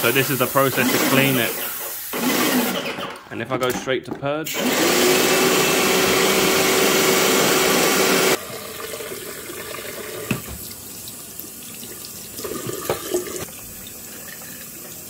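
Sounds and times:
tap water splashing in sink: 0:09.7 - 0:11.2, 0:12.4 - 0:15.0.

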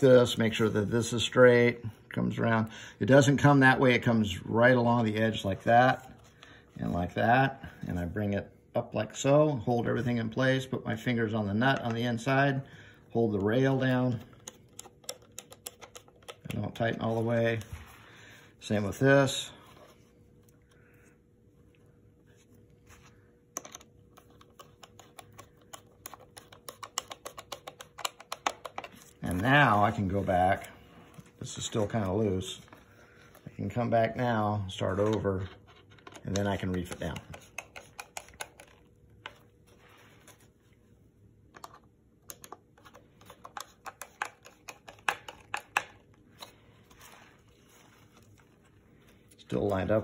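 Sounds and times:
screwdriver clicks and taps: 0:23.6 - 0:28.9.

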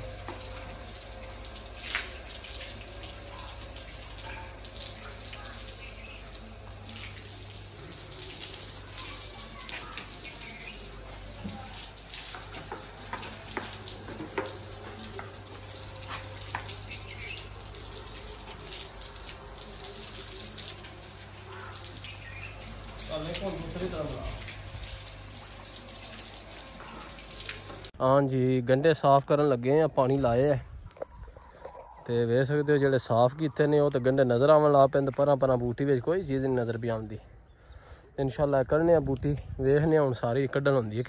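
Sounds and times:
hose water hissing: 0:00.0 - 0:28.0
water splattering on concrete: 0:00.0 - 0:28.0.

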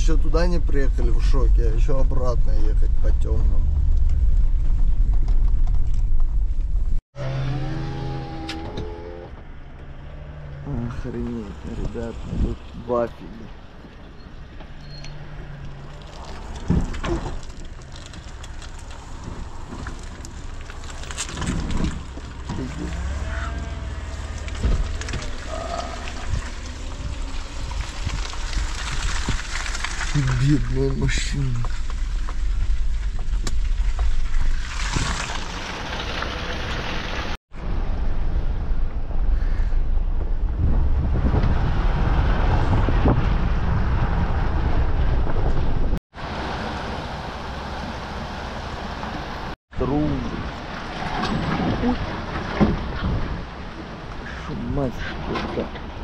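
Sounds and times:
car engine and tyres rumbling: 0:00.0 - 0:56.0
wind buffeting microphone: 0:38.6 - 0:46.0.

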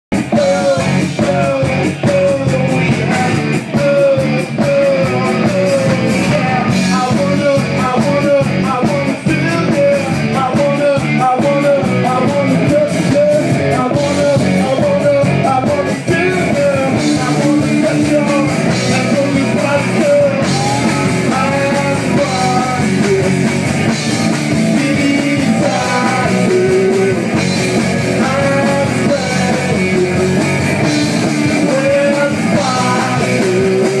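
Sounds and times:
electric guitar: 0:00.1 - 0:34.0
live rock band playing: 0:00.1 - 0:34.0
man singing into a microphone: 0:00.1 - 0:34.0.

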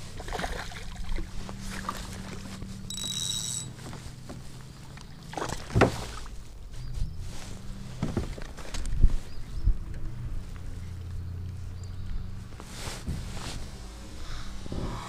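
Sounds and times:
fish splashing in water: 0:00.0 - 0:02.6, 0:04.7 - 0:06.4.

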